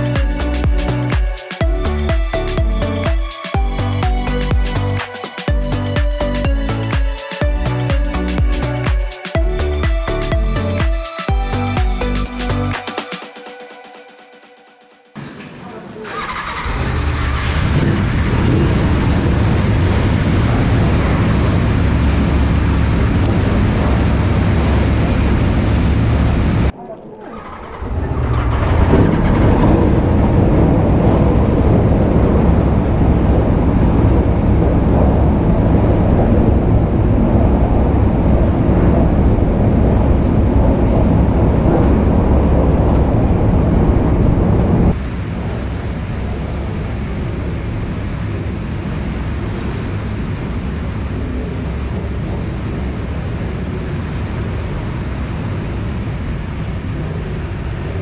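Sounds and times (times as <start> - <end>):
wind rushing: 16.3 - 58.0.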